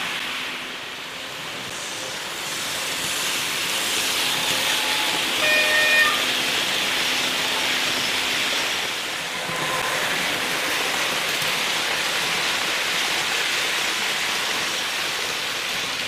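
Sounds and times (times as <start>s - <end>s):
model train wheels rushing: 0.0s - 16.0s
high wheel squeal: 3.9s - 6.5s.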